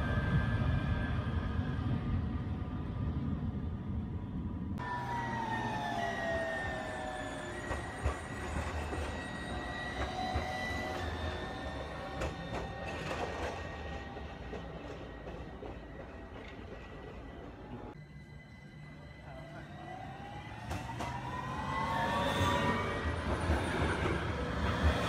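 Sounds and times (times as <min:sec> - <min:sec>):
electric tram whine: 0:00.0 - 0:25.0.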